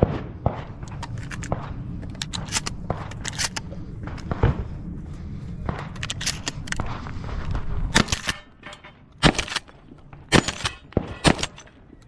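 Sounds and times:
gun clicks and knocks: 0.8 - 4.4, 5.7 - 12.0
shotgun shots: 10.3 - 11.7.

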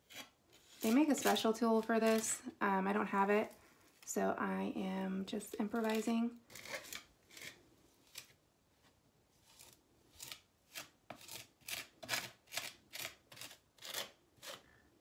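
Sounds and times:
putty knife scraping tile: 0.0 - 2.4, 5.8 - 8.4, 9.4 - 14.8.

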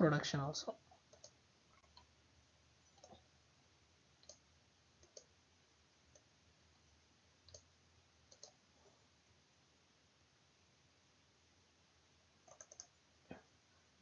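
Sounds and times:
computer mouse clicks: 1.1 - 2.1, 2.9 - 3.2, 4.2 - 4.4, 5.0 - 5.3, 7.4 - 7.7, 8.3 - 8.6, 12.4 - 13.0.

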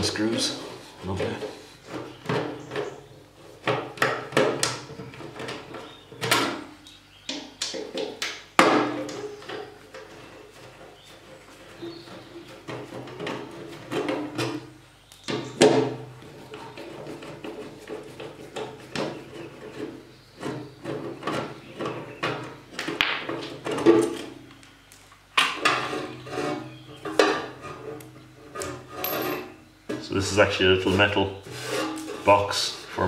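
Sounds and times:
metal plate scraping: 25.5 - 33.0.

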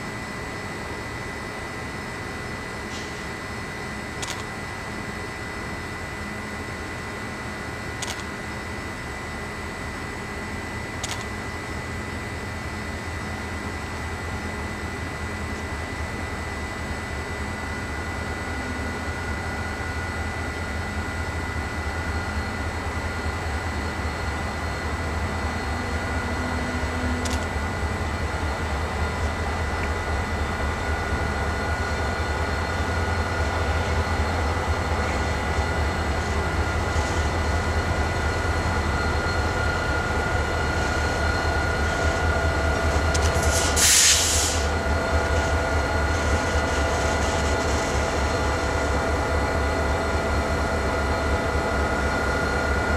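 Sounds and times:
diesel locomotive engines rumbling: 0.0 - 52.9
burst of hiss: 43.4 - 44.7.

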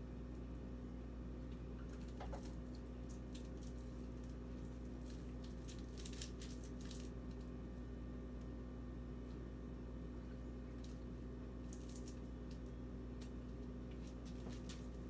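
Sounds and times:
sticky popcorn squishing: 1.5 - 7.7, 10.6 - 15.0.

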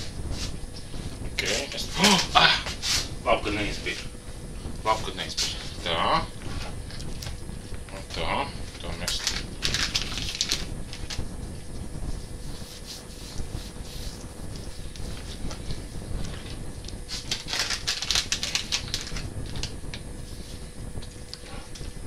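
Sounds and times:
plastic packet crinkling: 9.0 - 11.2, 17.1 - 19.7
hands rubbing fish skin: 12.4 - 15.8.

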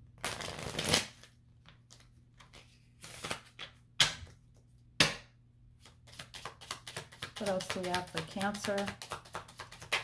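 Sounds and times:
cards riffle shuffled: 0.3 - 3.7, 5.8 - 10.0.

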